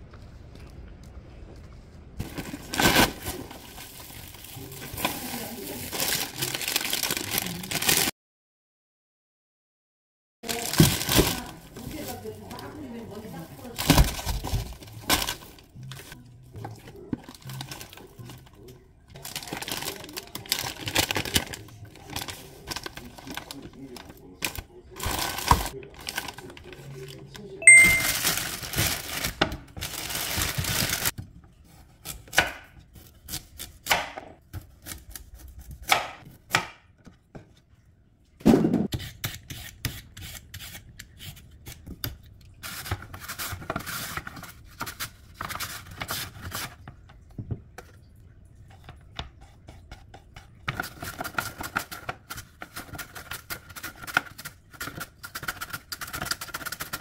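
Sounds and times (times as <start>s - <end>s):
plastic packaging crinkling: 2.2s - 8.1s, 10.4s - 16.2s, 17.2s - 31.2s.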